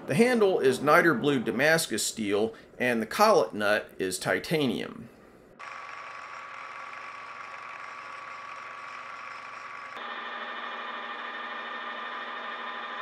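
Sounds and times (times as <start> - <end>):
metal lathe running: 5.6 - 13.0
milling machine whirring: 5.6 - 13.0.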